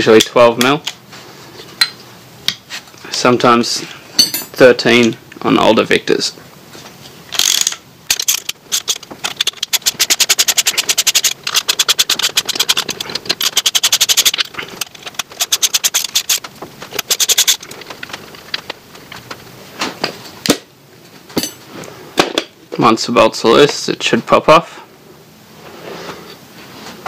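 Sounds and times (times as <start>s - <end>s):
socket ratchet clicking: 7.4s - 17.8s.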